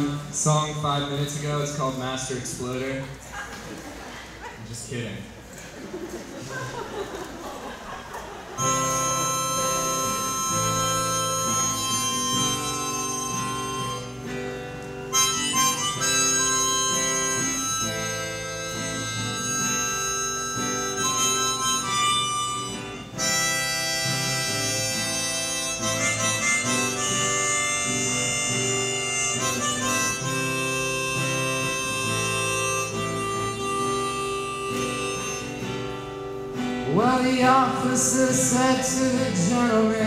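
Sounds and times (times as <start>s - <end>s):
acoustic guitar strumming: 0.0s - 3.1s, 8.5s - 40.0s
harmonica playing chords: 8.6s - 40.0s.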